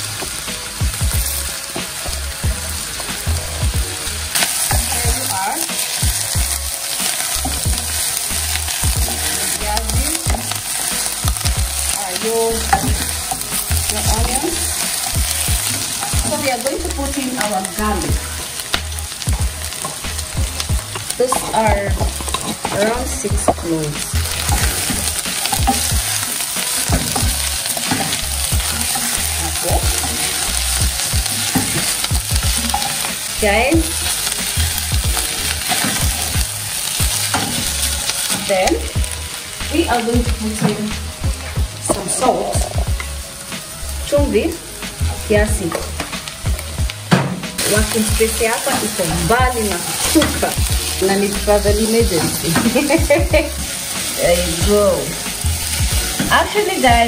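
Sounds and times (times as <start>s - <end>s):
food sizzling in butter: 0.0s - 57.0s
spoon stirring in a pan: 2.7s - 39.8s, 55.0s - 56.8s.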